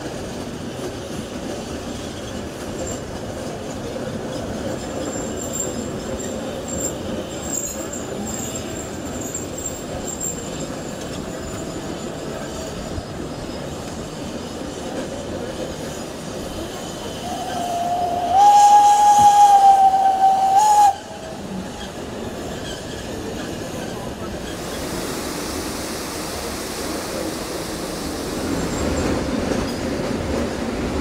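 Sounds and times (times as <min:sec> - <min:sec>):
train carriages rolling on track: 0:00.0 - 0:31.0
steam locomotive whistle: 0:17.1 - 0:21.4.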